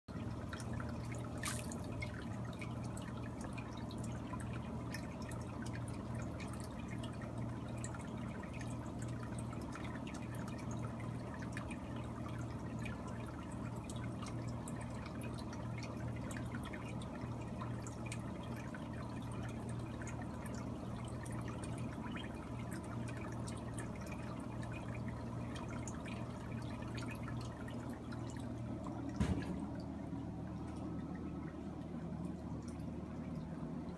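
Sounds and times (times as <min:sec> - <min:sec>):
water splashing and dripping: 0:00.4 - 0:07.2, 0:24.5 - 0:33.6.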